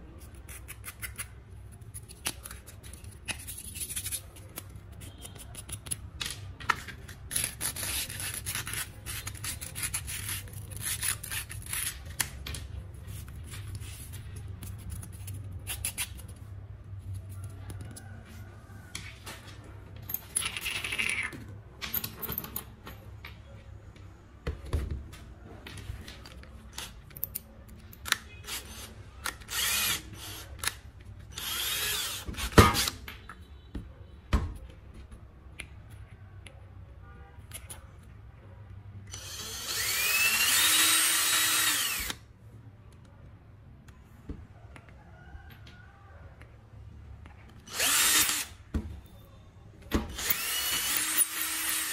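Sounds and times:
cordless drill whirring: 28.5s - 30.4s, 31.3s - 32.9s, 39.1s - 42.2s, 47.7s - 48.5s, 50.1s - 51.9s.

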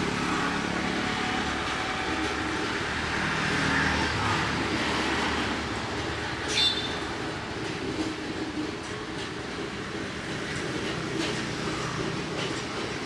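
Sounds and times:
rumble of passing traffic: 0.0s - 13.0s
high-pitched squeak: 6.5s - 7.0s.

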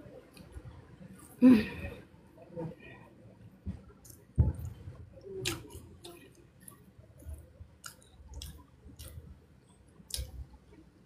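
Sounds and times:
person chewing with lip smacks: 5.4s - 9.2s, 10.0s - 10.4s.

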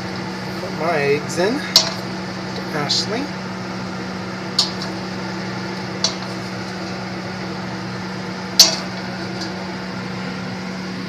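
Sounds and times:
steady low hum: 0.0s - 11.0s
metallic pan clank: 4.6s - 5.0s, 8.6s - 9.6s.

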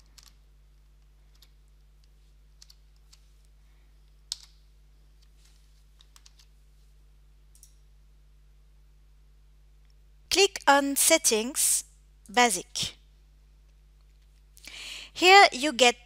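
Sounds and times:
computer keyboard keys tapping: 0.0s - 3.3s, 4.3s - 4.6s, 6.0s - 6.5s
faint low hum: 0.0s - 16.0s.

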